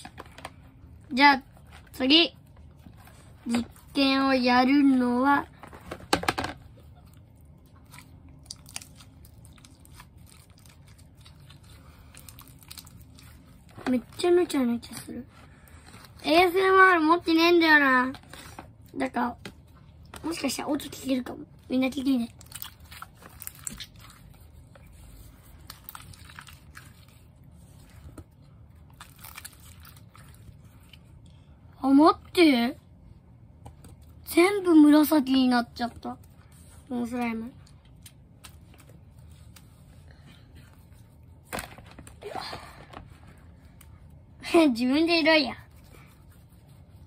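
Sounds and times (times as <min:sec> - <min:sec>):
slime squelching: 0:06.6 - 0:31.6.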